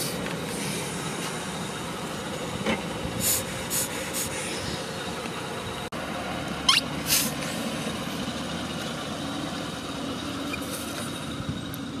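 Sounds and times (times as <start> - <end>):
car engine running: 0.0 - 12.0
falling squeak: 6.7 - 6.9.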